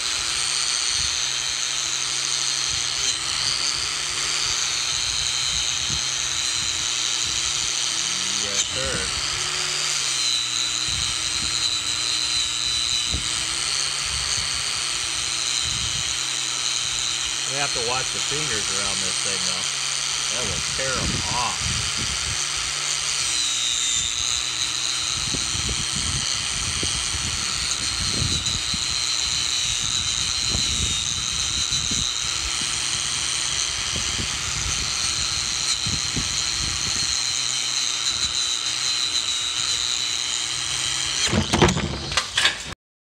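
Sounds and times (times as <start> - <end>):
angle grinder motor whine: 0.0 - 42.8
loud knocks and clatters: 41.2 - 42.7.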